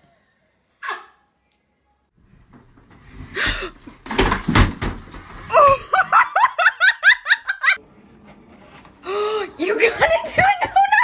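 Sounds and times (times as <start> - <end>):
person laughing: 5.5 - 7.8.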